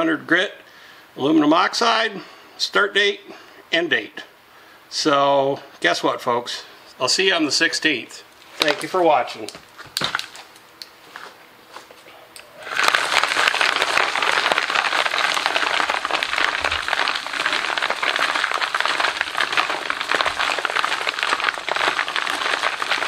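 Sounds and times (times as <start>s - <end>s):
rocks clattering in tumbler barrels: 8.6s - 10.4s, 12.6s - 23.0s.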